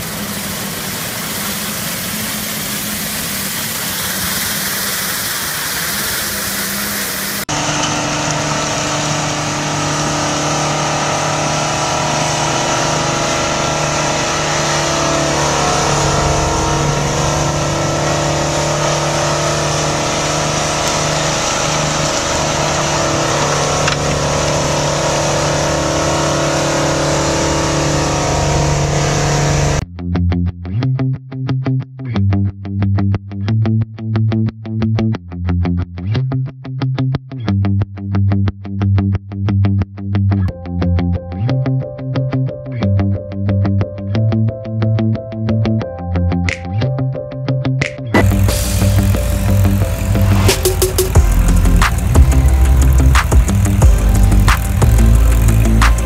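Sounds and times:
rotary broom sweeping snow: 0:00.0 - 0:07.9, 0:48.2 - 0:56.0
snowblower engine running under load: 0:00.0 - 0:29.8, 0:48.2 - 0:56.0
truck engine: 0:00.0 - 0:29.8, 0:48.2 - 0:56.0.

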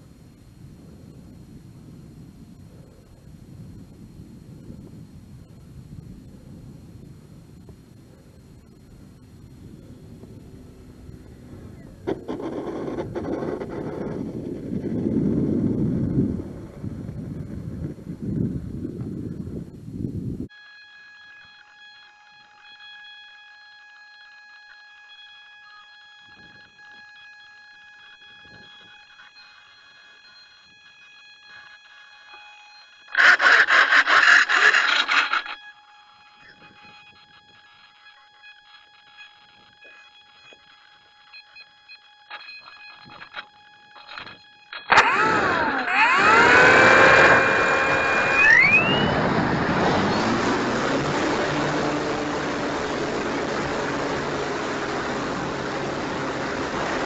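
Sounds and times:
electric motor and propeller whine: 0:00.0 - 0:57.0
faint electronic whine: 0:00.0 - 0:57.0
loud burst of noise: 0:12.0 - 0:16.6, 0:33.1 - 0:35.6, 0:44.7 - 0:57.0.

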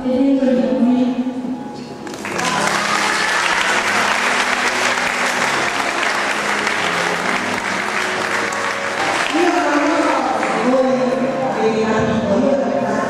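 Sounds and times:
large audience applauding: 0:02.0 - 0:10.7.

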